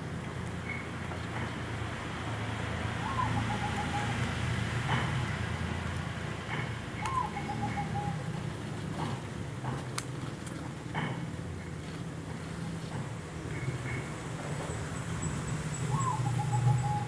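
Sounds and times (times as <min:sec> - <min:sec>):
low traffic rumble: 0:00.0 - 0:17.0
bird calling with trill: 0:03.0 - 0:04.2, 0:07.0 - 0:08.4, 0:14.7 - 0:17.0.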